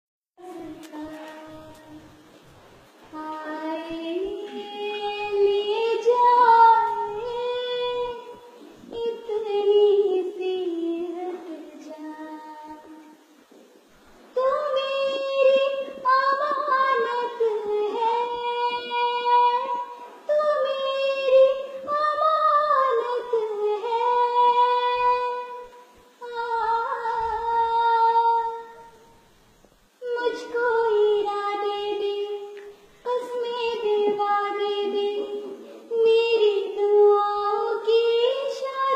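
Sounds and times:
girl singing unaccompanied: 0.4s - 13.4s, 14.3s - 38.9s.

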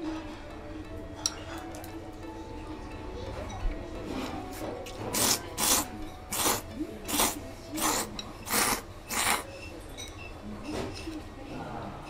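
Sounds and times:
person slurping noodles: 5.1s - 9.5s.

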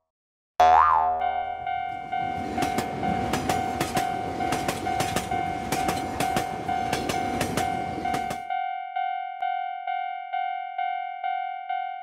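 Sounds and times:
railroad crossing bell ringing: 1.2s - 12.0s
train rushing past: 1.6s - 8.5s
wheels clicking over rails: 1.9s - 8.5s.

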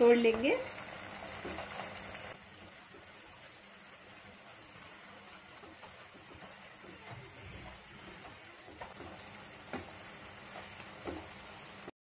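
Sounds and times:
noodles simmering in a pan: 0.0s - 11.9s
spatula stirring noodles: 1.1s - 11.9s
spatula tapping pan: 5.5s - 11.4s.

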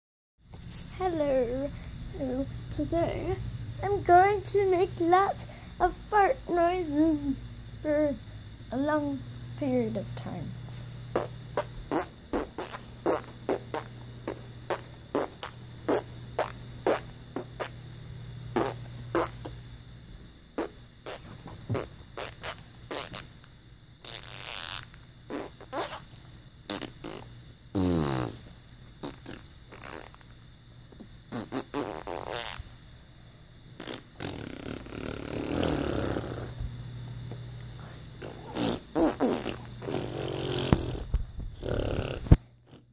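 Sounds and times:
steady low hum: 0.4s - 42.9s
fart noises: 11.1s - 17.8s, 18.5s - 19.6s, 20.6s - 23.4s, 24.0s - 30.4s, 31.3s - 32.8s, 33.8s - 36.7s, 38.2s - 42.9s.

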